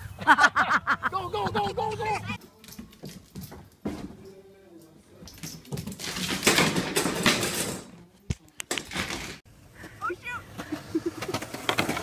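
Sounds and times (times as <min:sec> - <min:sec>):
clattering scuffling commotion: 0:05.2 - 0:08.0.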